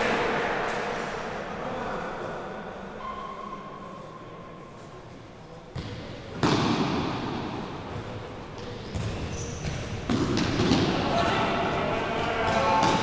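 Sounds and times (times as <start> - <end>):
voices: 10.6 - 13.0.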